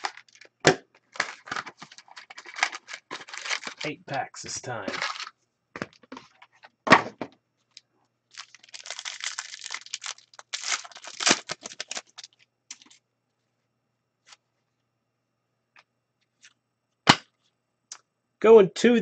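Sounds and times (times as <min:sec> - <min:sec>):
foil wrapper tearing and crinkling: 0:00.0 - 0:03.9, 0:04.9 - 0:05.3, 0:08.3 - 0:13.0.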